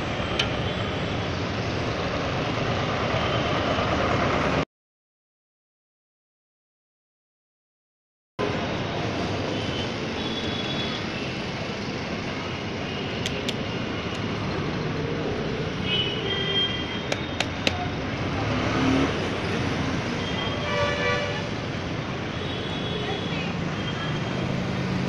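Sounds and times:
roadside traffic: 0:00.0 - 0:04.7, 0:08.4 - 0:25.0
sharp clicks: 0:13.2 - 0:14.3, 0:17.1 - 0:17.9.

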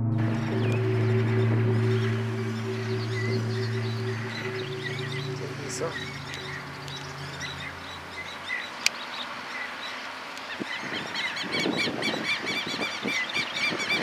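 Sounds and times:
low rumble: 0:00.0 - 0:08.8.

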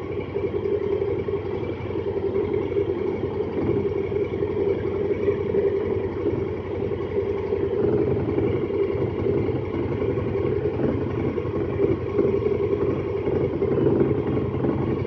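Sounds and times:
tyre and drivetrain noise: 0:00.0 - 0:15.0
utility vehicle engine running: 0:00.0 - 0:15.0.

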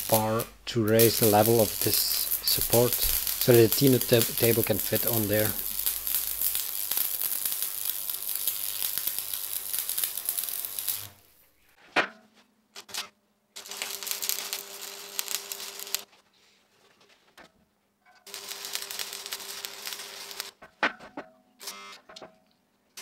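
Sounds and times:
arc welding sizzle: 0:00.0 - 0:11.6, 0:13.6 - 0:16.1, 0:18.3 - 0:20.6.

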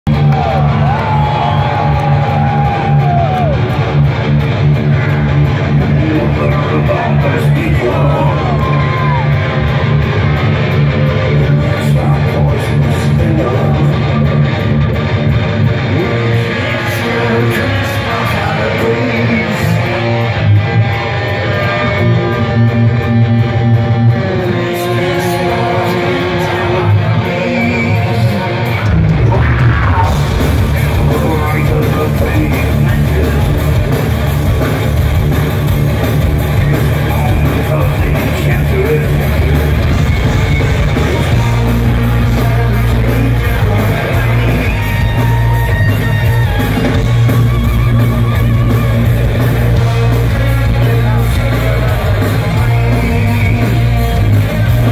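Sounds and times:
electric guitar solo: 0:06.7 - 0:12.0, 0:13.6 - 0:30.4, 0:38.8 - 0:50.8.

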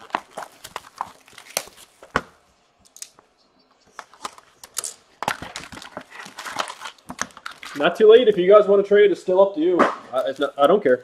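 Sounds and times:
plastic wrapping crinkling: 0:00.0 - 0:02.2, 0:04.0 - 0:08.7, 0:10.1 - 0:11.0.

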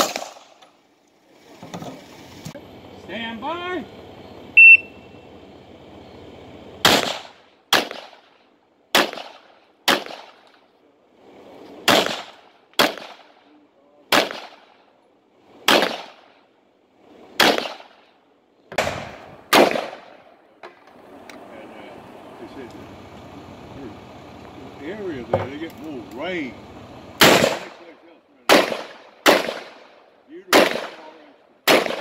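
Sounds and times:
pistol shots: 0:00.0 - 0:00.6, 0:06.8 - 0:10.6, 0:11.8 - 0:13.5, 0:14.1 - 0:14.9, 0:15.6 - 0:16.4, 0:17.4 - 0:18.1, 0:18.7 - 0:20.3, 0:27.2 - 0:32.0
shot timer beep: 0:04.6 - 0:05.0.

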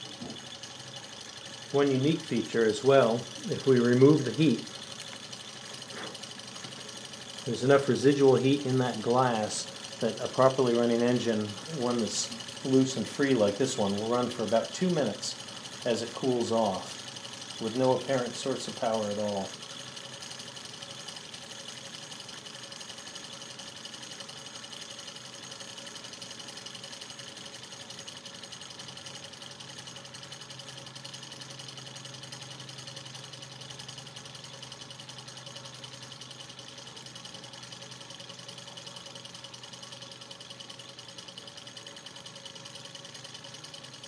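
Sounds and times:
stirling engine mechanical chatter: 0:00.0 - 0:44.0.

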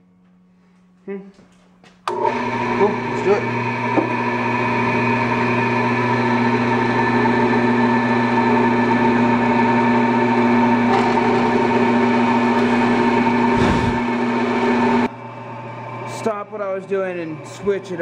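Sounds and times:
bandsaw motor hum: 0:02.1 - 0:16.2
bandsaw blade cutting metal: 0:10.9 - 0:12.6.

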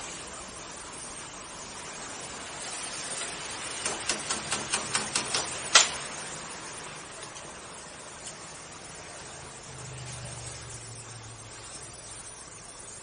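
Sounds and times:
steady hiss: 0:00.0 - 0:13.0
sharp clicks: 0:03.8 - 0:06.1.

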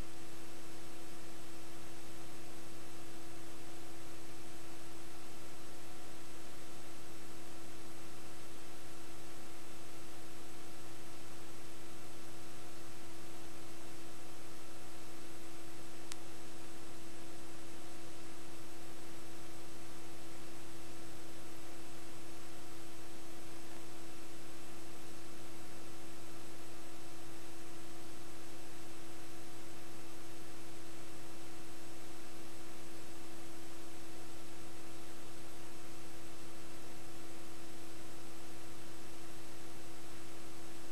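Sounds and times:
electrical hum with hiss: 0:00.0 - 0:40.9
faint click: 0:16.0 - 0:16.4.

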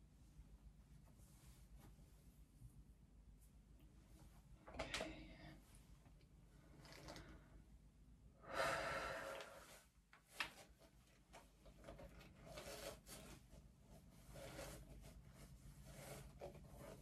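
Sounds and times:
breathy exhale: 0:08.4 - 0:09.8
comb and brush rustling through hair: 0:09.3 - 0:17.0.

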